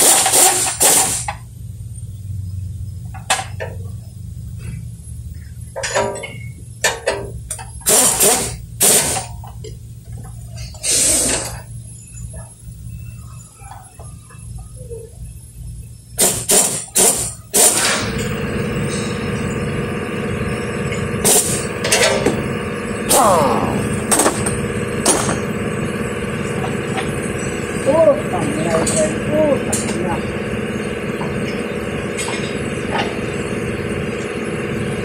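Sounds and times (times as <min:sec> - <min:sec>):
pneumatic ratchet bursts: 0:00.0 - 0:01.4, 0:07.0 - 0:09.4, 0:10.6 - 0:11.7, 0:16.2 - 0:28.0
steady low hum: 0:00.0 - 0:35.0.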